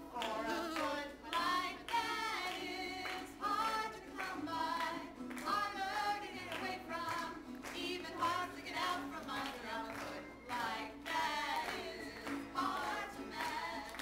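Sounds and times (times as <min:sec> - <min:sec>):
two women singing: 0:00.0 - 0:14.0.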